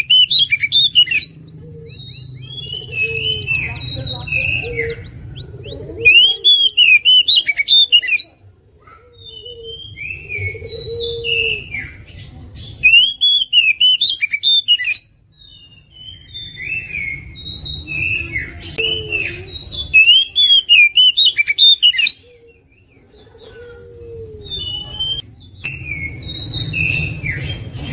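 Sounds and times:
bird singing: 0.0 - 27.9.

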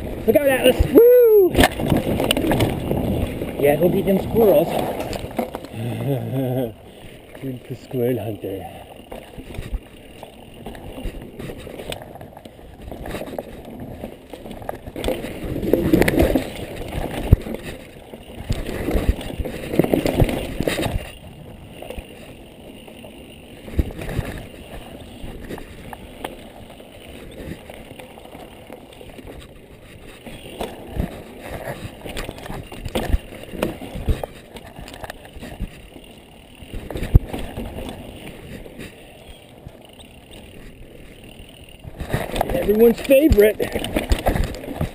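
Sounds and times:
tyre and wind rush: 0.0 - 6.3
bike knocking and rattling: 0.0 - 44.9.

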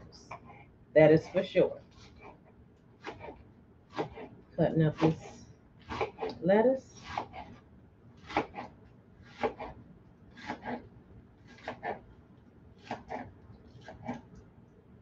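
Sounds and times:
knife chopping lettuce: 3.0 - 6.4, 7.0 - 7.6, 8.2 - 9.8, 10.4 - 12.0, 12.8 - 14.3.

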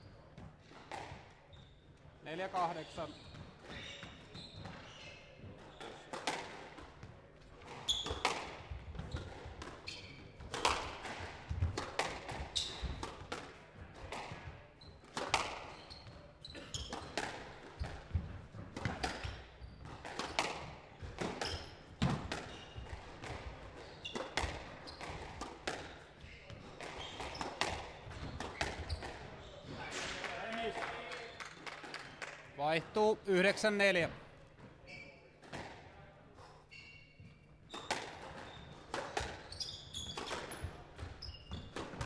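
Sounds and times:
squash ball hitting rackets and walls: 0.1 - 1.6, 2.5 - 30.4, 35.4 - 36.1, 37.6 - 42.0
shoes squeaking on wooden floor: 1.5 - 6.1, 15.7 - 17.2, 23.7 - 30.0, 34.6 - 35.4, 36.7 - 41.8.

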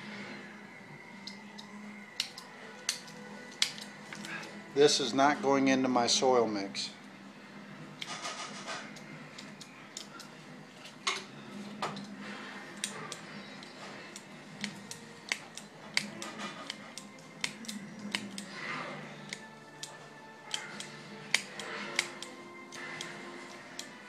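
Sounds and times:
pruning shears snipping roots: 12.7 - 24.0.

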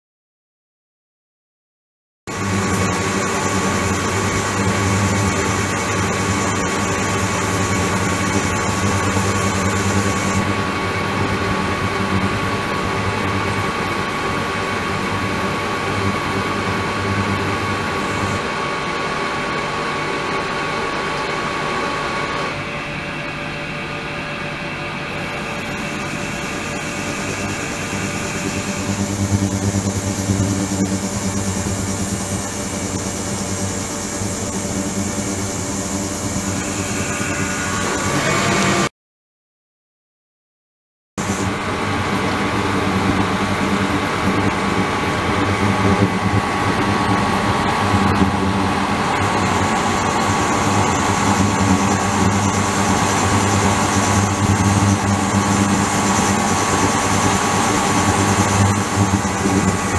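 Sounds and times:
high steady whines: 2.3 - 38.9, 41.2 - 59.9
machine hum with low drone: 2.3 - 38.9, 41.2 - 59.9.

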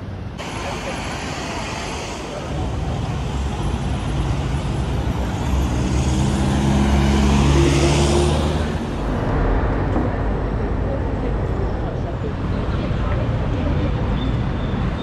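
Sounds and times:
vehicle passing close by: 2.6 - 14.1.

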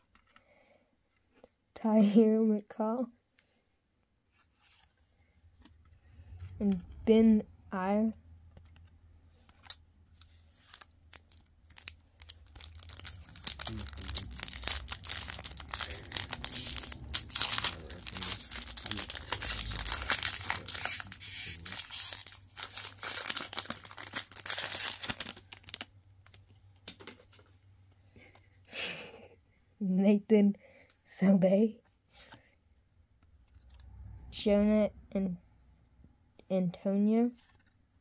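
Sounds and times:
foil wrapper tearing and crinkling: 9.6 - 26.5.

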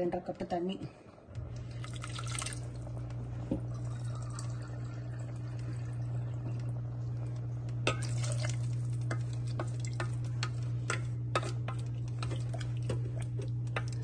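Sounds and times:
steady low hum: 0.0 - 14.0
spoon stirring liquid in pot: 7.8 - 14.0.

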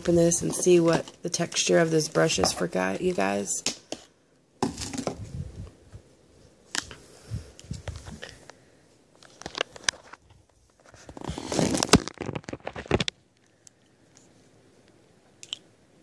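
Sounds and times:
plastic packaging crinkling and tearing: 9.2 - 13.2.

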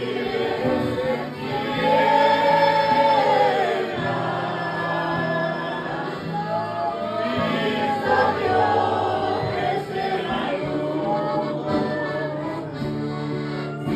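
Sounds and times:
instrumental backing: 0.0 - 13.9
man and woman singing a hymn: 0.0 - 13.9
other voices singing: 0.0 - 13.9.

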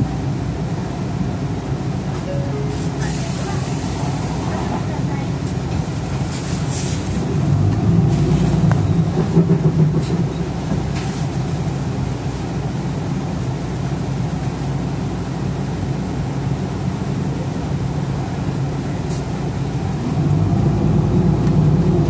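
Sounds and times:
bus engine humming: 0.0 - 22.0.

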